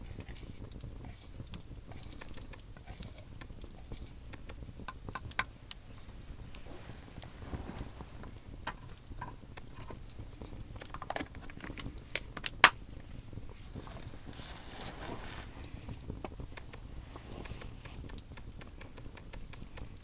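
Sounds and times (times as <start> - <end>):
campfire crackling and popping: 0.0 - 20.0
soft hiss: 0.0 - 20.0
loud wood snap: 10.8 - 13.0.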